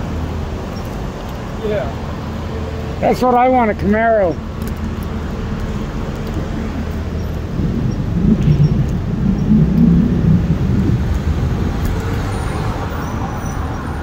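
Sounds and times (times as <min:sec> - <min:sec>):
wind buffeting microphone: 0:04.4 - 0:14.0.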